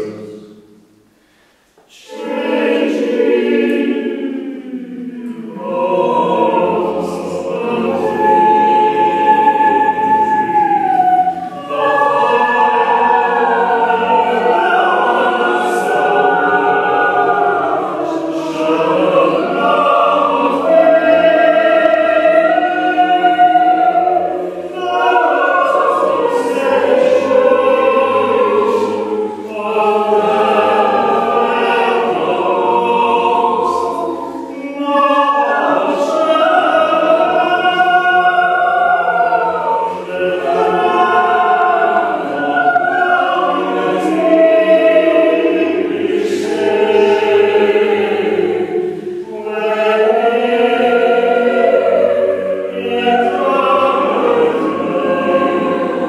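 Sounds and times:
mixed choir singing unaccompanied: 0.0s - 0.9s, 1.8s - 56.0s.

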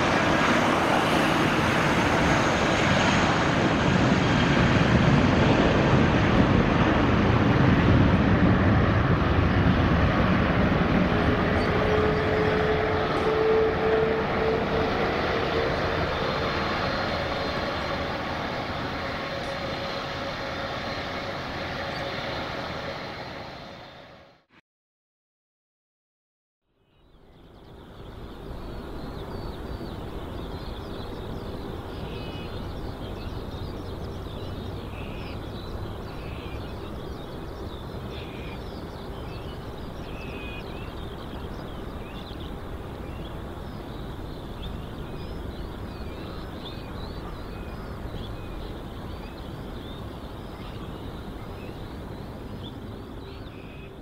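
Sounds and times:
birds chirping: 26.9s - 54.0s.

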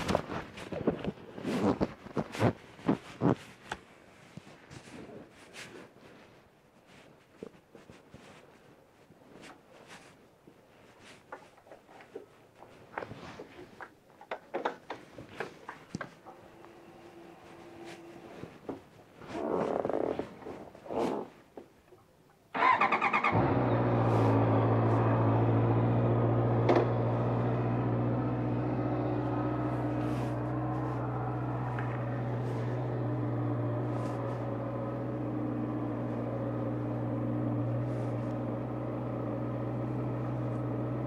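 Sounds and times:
motorcycle engine starting and idling: 22.5s - 41.0s.

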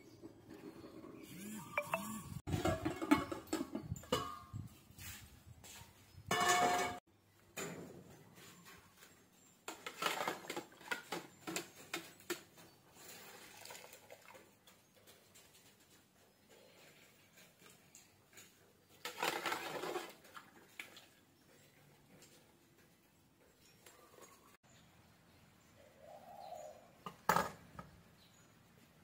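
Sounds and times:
metal pot and ladle clattering: 2.5s - 4.8s, 6.3s - 7.0s.

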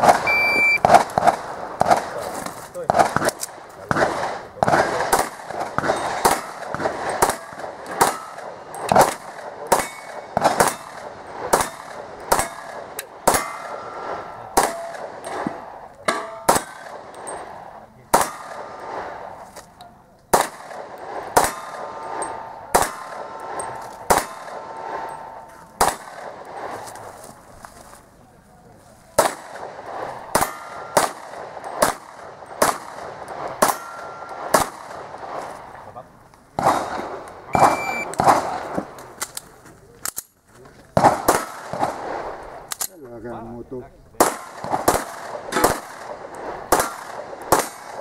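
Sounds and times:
pistol shots: 0.0s - 2.2s, 2.8s - 19.4s, 20.3s - 26.9s, 29.2s - 35.5s, 36.6s - 38.9s, 41.0s - 42.8s, 44.2s - 48.0s
short metallic ring: 33.8s - 34.4s.

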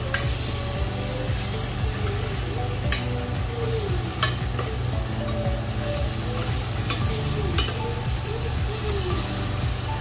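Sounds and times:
utensil clicking against pan: 0.0s - 0.4s, 2.8s - 3.2s, 4.1s - 5.5s, 6.4s - 7.9s
food sizzling in a frying pan: 0.0s - 10.0s.

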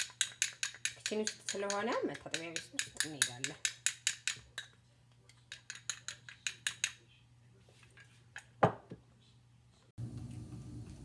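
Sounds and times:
spoon clinking against glass bowl: 0.0s - 4.8s, 5.5s - 7.0s.

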